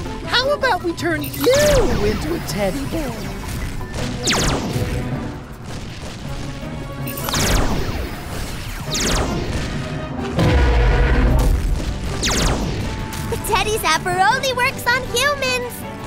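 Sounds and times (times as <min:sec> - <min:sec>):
background music: 0:00.0 - 0:16.0
loud low boom: 0:10.4 - 0:13.0.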